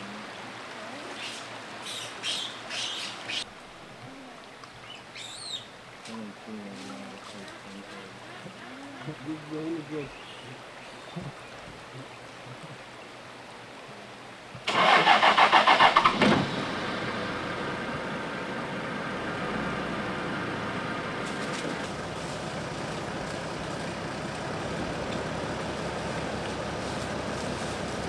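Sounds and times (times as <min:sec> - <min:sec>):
engine starter cranking: 0:14.7 - 0:16.6
engine running steadily: 0:14.7 - 0:28.0.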